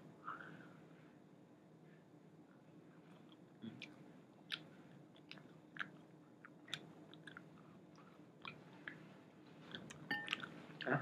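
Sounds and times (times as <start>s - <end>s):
low steady hum: 0.0s - 11.0s
chewing and mouth smacks: 3.0s - 9.0s, 9.6s - 10.6s.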